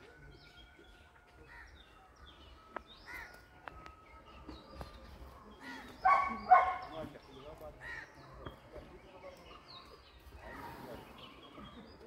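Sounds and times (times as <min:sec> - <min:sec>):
birds calling: 0:00.2 - 0:12.0.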